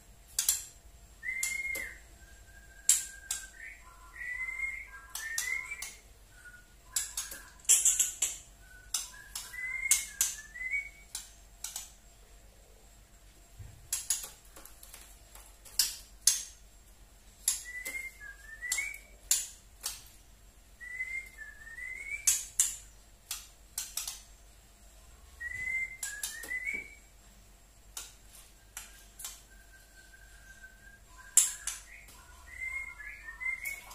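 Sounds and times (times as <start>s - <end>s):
bird rising whistled notes: 1.2s - 7.7s, 8.6s - 11.1s, 28.9s - 33.9s.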